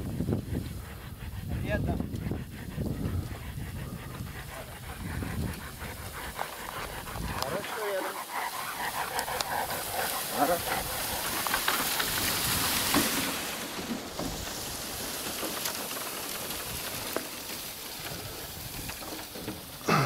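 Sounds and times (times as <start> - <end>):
branches rustling against microphone: 0.0 - 20.0.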